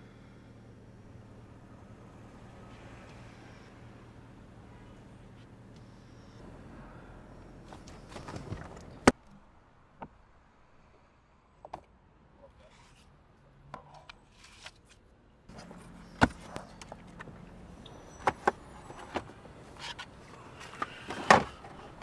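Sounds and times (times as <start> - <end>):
clicks and knocks inside car: 7.7 - 9.2.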